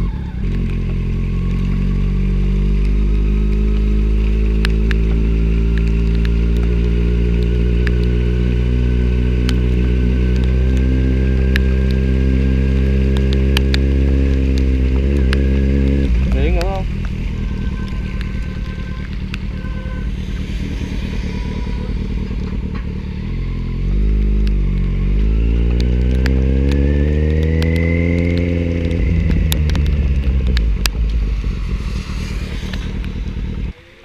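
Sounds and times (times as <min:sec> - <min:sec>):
motorbike engine running: 0:00.0 - 0:33.9
road and wind noise: 0:00.0 - 0:34.0
sharp clicks: 0:25.7 - 0:33.7.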